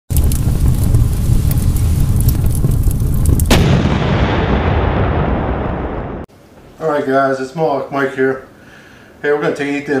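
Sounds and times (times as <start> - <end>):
explosion boom: 0.1 - 6.3
rumbling fire crackling: 0.1 - 6.3.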